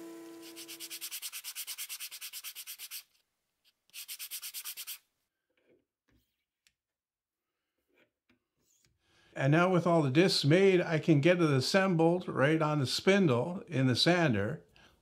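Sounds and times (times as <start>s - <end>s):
hand sanding with sandpaper: 0.4s - 3.2s, 3.9s - 5.1s.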